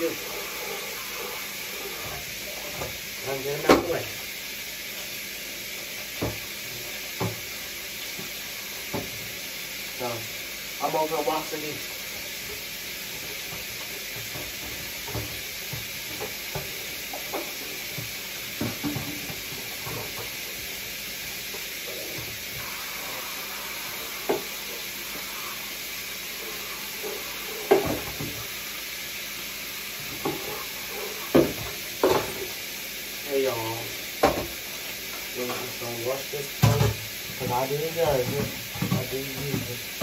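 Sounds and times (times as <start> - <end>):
meat sizzling in a frying pan: 0.0 - 40.0
dishes knocking and clinking: 13.5 - 20.3, 27.1 - 28.4, 31.3 - 32.5, 36.6 - 37.0, 38.1 - 39.7.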